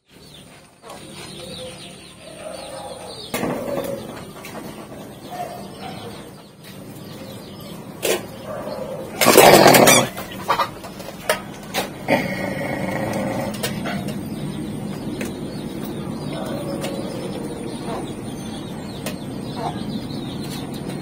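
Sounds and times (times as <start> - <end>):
animal calls: 8.0 - 14.5.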